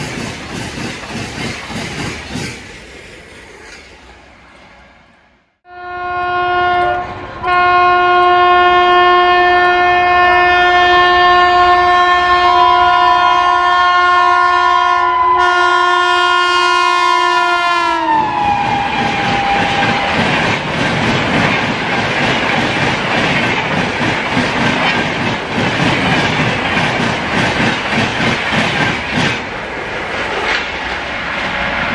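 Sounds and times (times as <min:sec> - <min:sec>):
train coaches rushing past: 0:00.0 - 0:05.4, 0:17.6 - 0:31.9
locomotive horn blast: 0:05.6 - 0:20.1.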